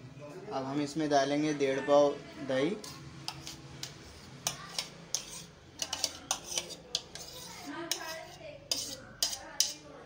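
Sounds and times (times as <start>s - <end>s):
metal spoon scraping plastic bowl: 2.8s - 9.9s.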